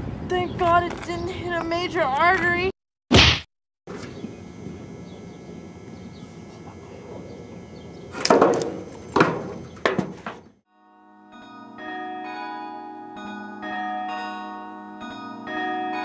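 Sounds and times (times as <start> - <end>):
outdoor background noise: 0.0 - 10.6
loud sharp whacks: 3.1 - 3.5
pitched bell-like music: 10.7 - 16.0.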